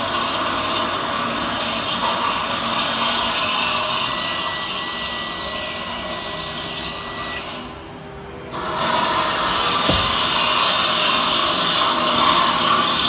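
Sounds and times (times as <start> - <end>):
tailgate strut mechanical whir: 9.6 - 10.7.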